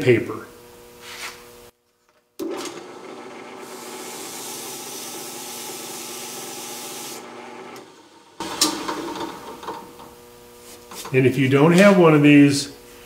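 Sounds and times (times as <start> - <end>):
drill press motor hum: 2.4 - 11.0.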